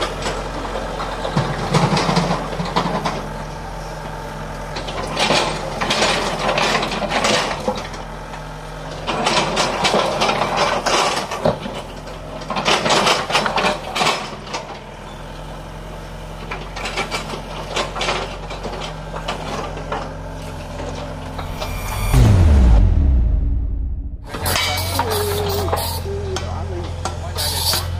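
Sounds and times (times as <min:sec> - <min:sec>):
diesel engine running: 0:20.1 - 0:27.3.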